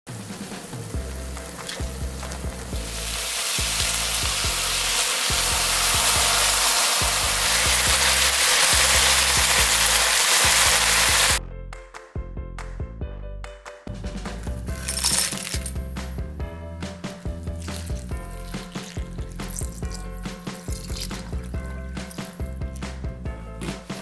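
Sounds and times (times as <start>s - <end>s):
meat sizzling in a pan: 0.1s - 11.4s
background music: 0.1s - 24.0s.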